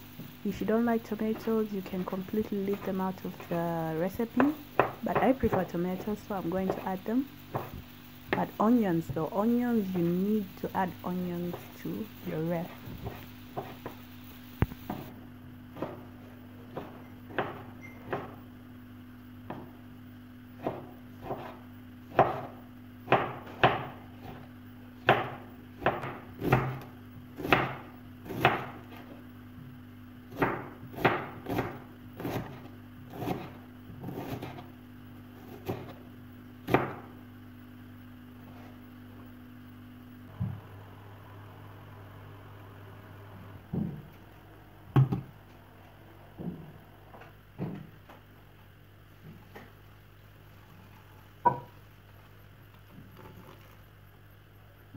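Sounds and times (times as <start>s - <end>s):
steady low hum: 0.0s - 54.9s
knife chopping on wooden board: 4.4s - 5.7s, 7.5s - 8.4s, 13.0s - 14.0s, 15.7s - 16.1s, 16.7s - 18.4s, 20.6s - 24.4s, 25.0s - 29.0s, 30.3s - 34.7s, 35.4s - 36.0s, 36.6s - 37.1s, 51.4s - 51.7s.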